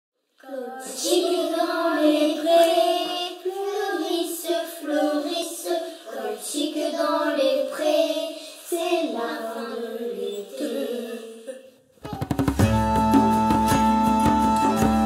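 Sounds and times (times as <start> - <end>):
child singing: 0.4 - 12.3.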